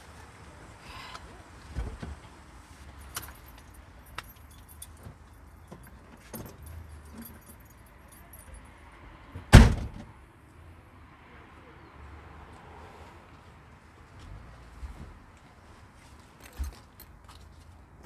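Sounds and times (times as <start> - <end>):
light metallic jingling: 2.9 - 8.8, 16.4 - 17.6
loud thump: 9.5 - 10.1.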